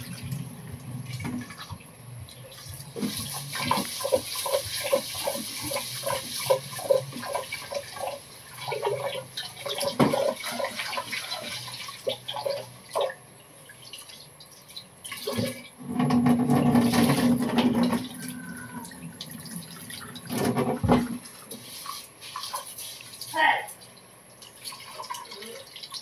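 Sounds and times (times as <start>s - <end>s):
tap water pouring into pot: 2.9s - 13.2s.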